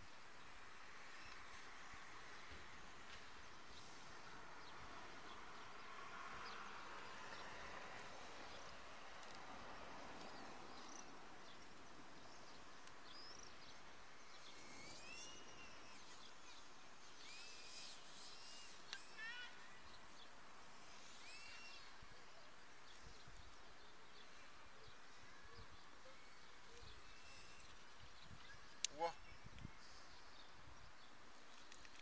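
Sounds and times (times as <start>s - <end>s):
bird chirps: 10.3s - 30.5s.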